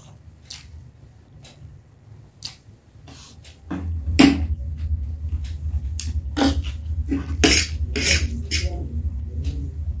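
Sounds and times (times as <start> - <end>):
low hum: 3.4 - 10.0.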